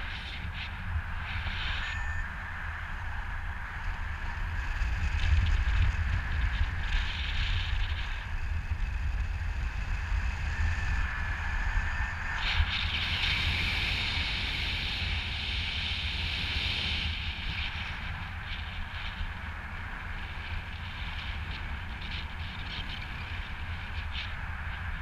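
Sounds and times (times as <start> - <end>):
wind buffeting microphone: 0.0 - 25.0.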